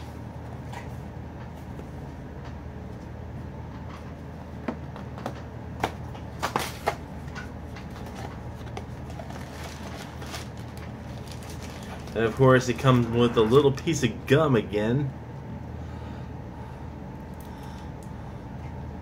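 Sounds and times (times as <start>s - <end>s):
steady low hum: 0.0s - 19.0s
toy packaging clicks and crinkles: 8.0s - 12.4s.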